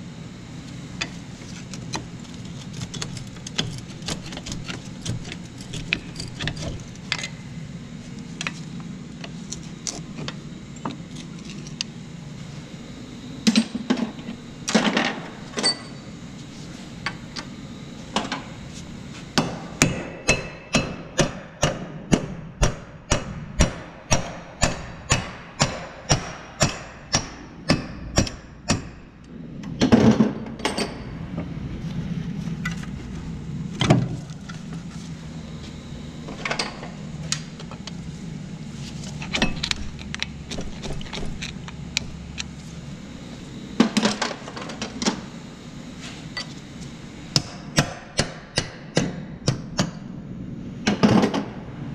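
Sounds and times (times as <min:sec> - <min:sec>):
tools knocking and clanking: 0:02.9 - 0:07.4
hammer striking metal shaft: 0:19.4 - 0:28.9.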